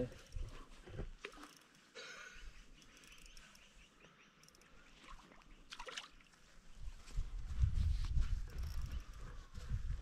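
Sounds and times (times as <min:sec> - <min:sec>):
soft ticks and rustles: 0:00.0 - 0:02.0, 0:02.6 - 0:03.8, 0:06.3 - 0:10.0.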